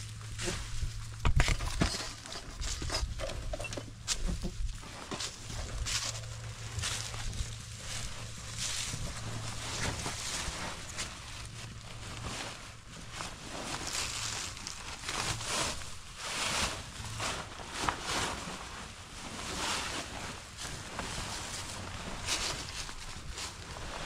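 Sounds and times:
low steady rumble: 0.0s - 24.0s
tent fabric rustling and swishing: 4.6s - 24.0s.

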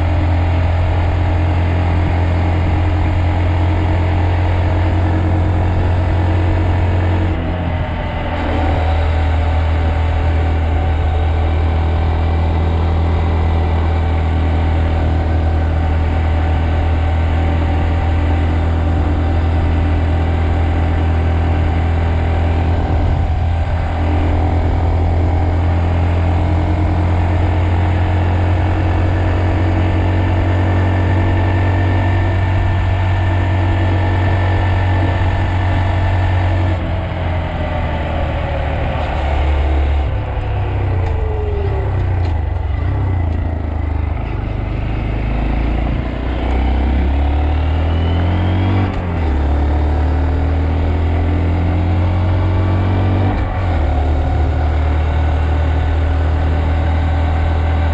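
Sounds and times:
motorcycle engine running: 0.0s - 57.9s.

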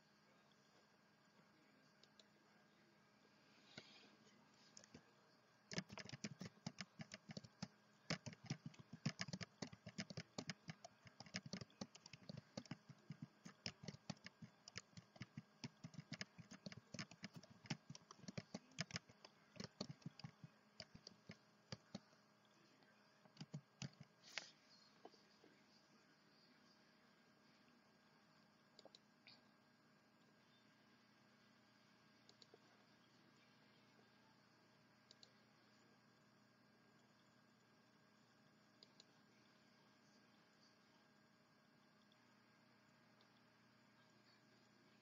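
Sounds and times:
computer keyboard typing: 5.7s - 22.1s, 23.3s - 24.1s.

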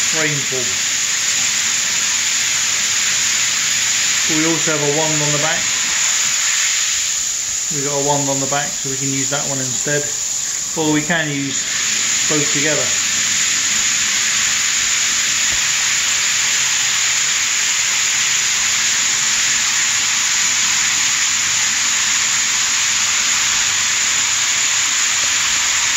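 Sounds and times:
shower water splashing on tiles: 10.4s - 25.9s.

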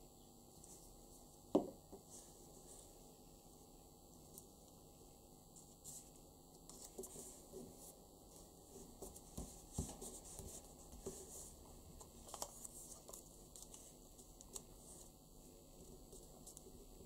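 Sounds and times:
paper rustling: 9.1s - 15.1s.

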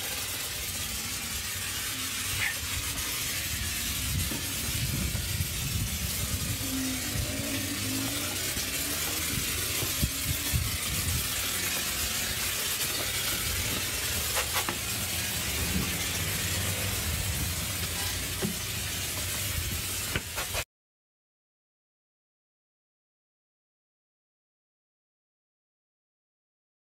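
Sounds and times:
steady hissing noise: 0.0s - 20.6s
low rumble: 2.8s - 12.4s.

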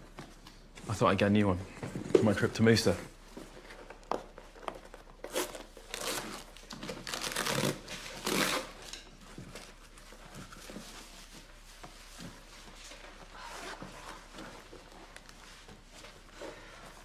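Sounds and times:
paper packaging tearing and crumpling: 5.3s - 8.8s.

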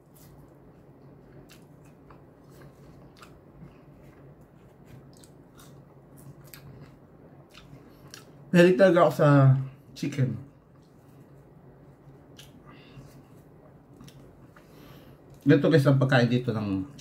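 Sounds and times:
person chewing crisp food: 0.0s - 8.5s, 10.6s - 15.5s
low steady hum: 0.0s - 17.0s.

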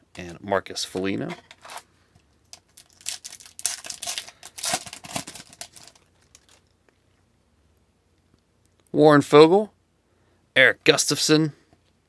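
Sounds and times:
foil pack tearing and crinkling: 2.5s - 6.6s.

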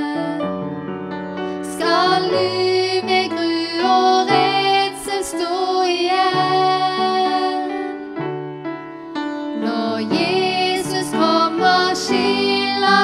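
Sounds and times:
woman singing: 0.0s - 0.5s, 1.6s - 8.1s, 9.6s - 13.0s
piano: 0.0s - 13.0s.

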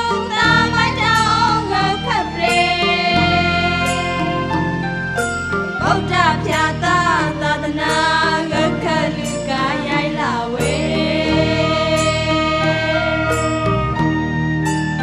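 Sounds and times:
person singing ornamented notes: 0.0s - 4.8s
backing music: 0.0s - 15.0s.

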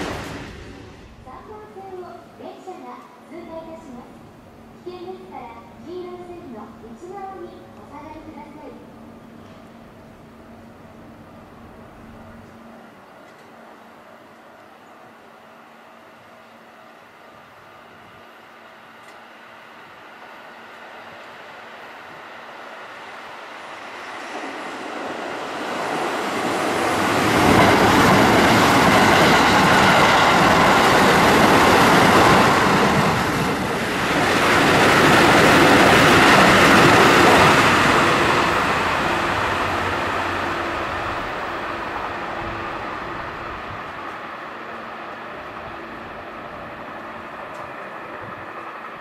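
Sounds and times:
train wheels rumbling on rail: 0.0s - 2.6s, 17.6s - 49.0s.

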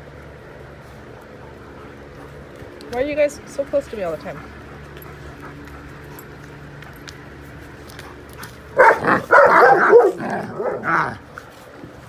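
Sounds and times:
dogs barking and yipping: 4.2s - 11.5s.

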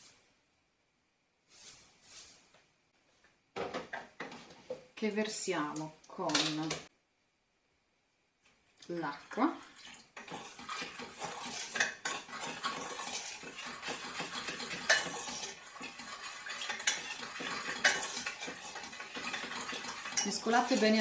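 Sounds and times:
spatula scraping a saucepan: 9.8s - 21.0s.

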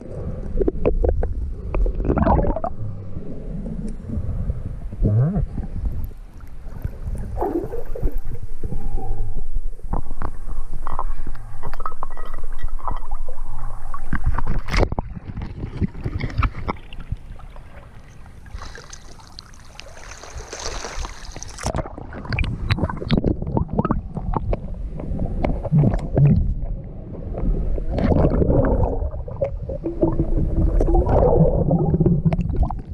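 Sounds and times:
underwater rumbling and gurgling: 0.0s - 18.6s, 20.9s - 32.9s
water splashing: 14.0s - 24.6s.

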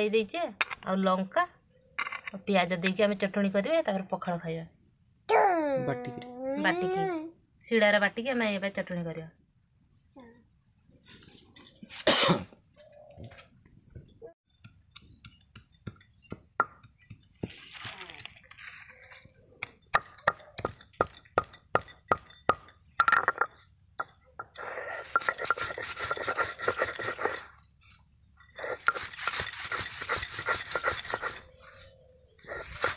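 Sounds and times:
stone muller tapping grinding stone: 14.5s - 17.6s, 19.6s - 27.5s
stone grinding and scraping: 14.5s - 32.9s.

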